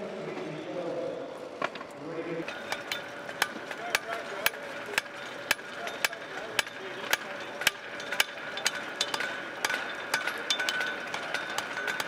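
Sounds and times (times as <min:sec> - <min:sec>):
hammer striking steel on anvil: 0:02.5 - 0:12.0.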